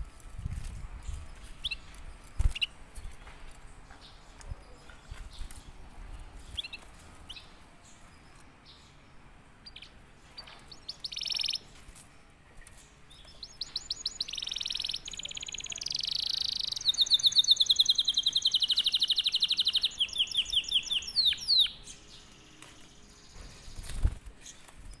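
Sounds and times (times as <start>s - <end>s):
canary chirping and trilling: 9.6s - 25.0s.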